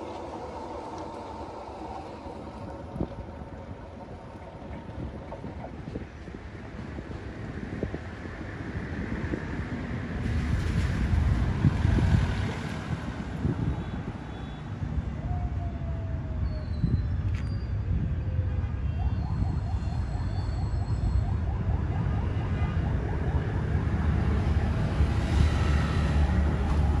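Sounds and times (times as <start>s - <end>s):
diesel locomotive rumble: 0.0s - 14.3s
motorbike traffic: 17.8s - 27.0s.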